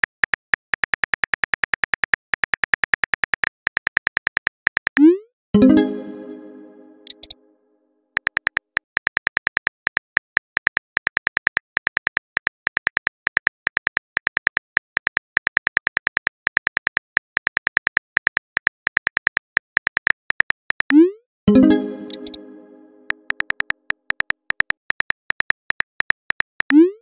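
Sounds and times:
phone keyboard typing clicks: 7.0s - 7.4s, 21.8s - 26.8s.

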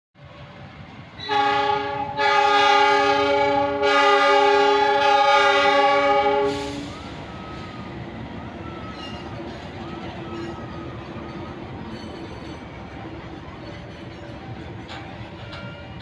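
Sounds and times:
low rumble of moving train: 0.2s - 16.0s
locomotive horn blast: 1.2s - 7.8s.

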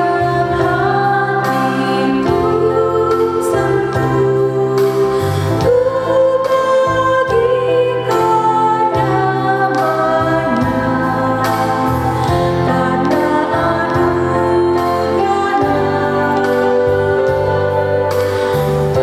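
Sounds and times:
instrumental accompaniment: 0.0s - 19.0s
hymn singing: 5.7s - 19.0s.

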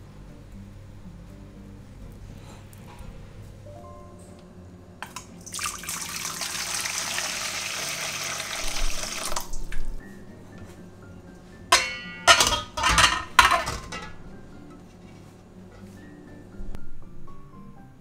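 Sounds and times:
water pouring into metal bowl: 5.4s - 9.7s
glass bowl knocking metal: 11.7s - 14.2s.

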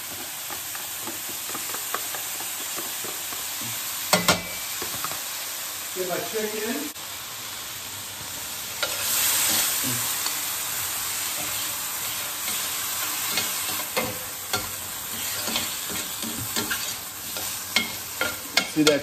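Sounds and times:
stirring scrapes and clicks in pan: 0.0s - 5.2s, 12.4s - 19.0s
food sizzling in a skillet: 0.0s - 19.0s.

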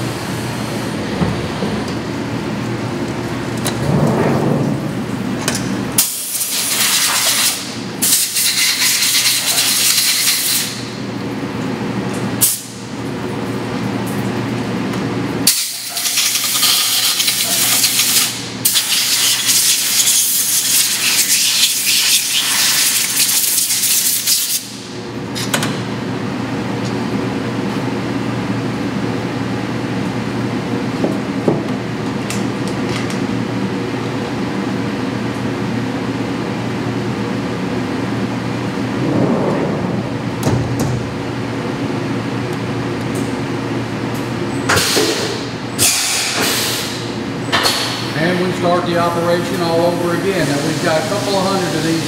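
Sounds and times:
machine hum: 0.0s - 8.4s, 24.7s - 45.9s.

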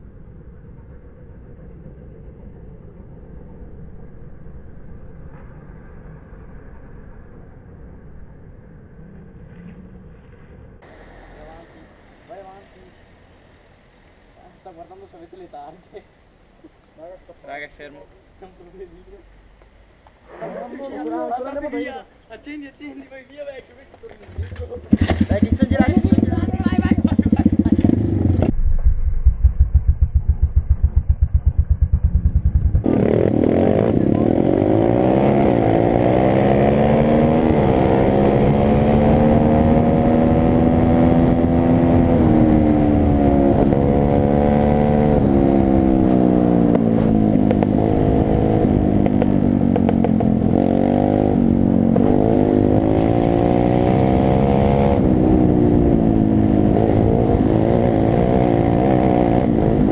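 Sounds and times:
motorbike engine revving: 24.3s - 28.6s, 29.4s - 59.9s.

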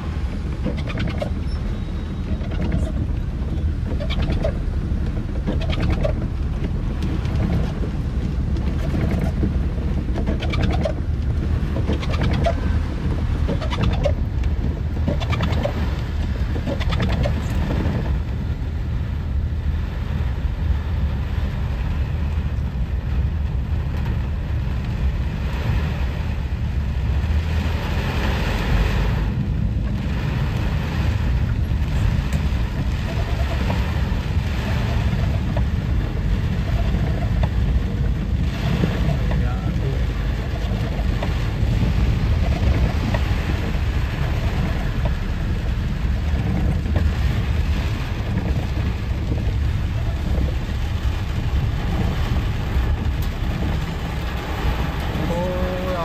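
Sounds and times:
car tyres rumbling through water: 0.0s - 56.0s
windscreen wipers squeaking: 0.0s - 56.0s.

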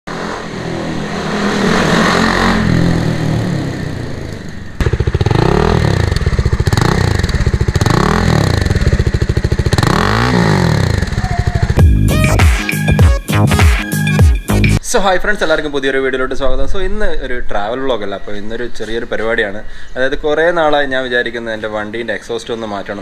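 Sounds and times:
motorcycle engine revving: 0.0s - 11.9s.

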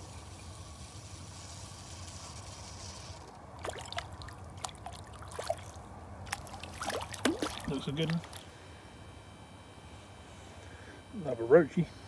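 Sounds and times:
water splashing and dripping: 3.6s - 8.4s.

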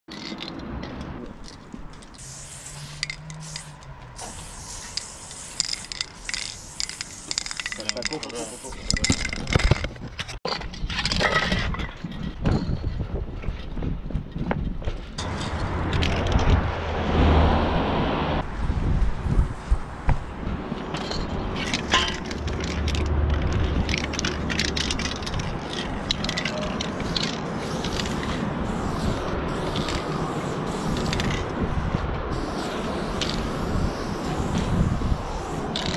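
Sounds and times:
aerosol spray can hissing: 2.2s - 9.2s, 26.0s - 31.6s, 32.3s - 35.9s
low rumble: 15.2s - 27.2s.

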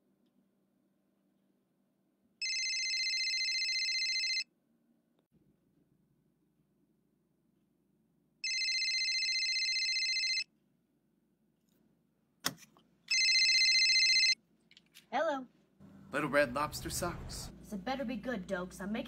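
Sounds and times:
telephone ringing: 2.4s - 4.5s, 8.4s - 10.5s, 13.1s - 14.4s.

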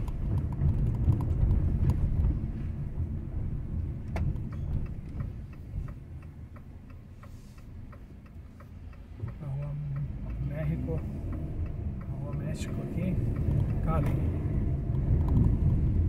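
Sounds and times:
car road and engine rumble: 0.0s - 16.0s
steady light ticking: 3.7s - 16.0s.

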